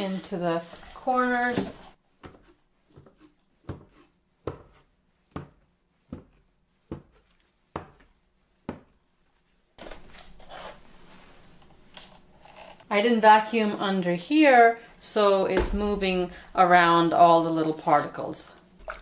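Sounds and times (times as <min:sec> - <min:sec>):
mop swishing over wooden floor: 0:00.0 - 0:02.0, 0:09.8 - 0:12.4, 0:15.7 - 0:19.0.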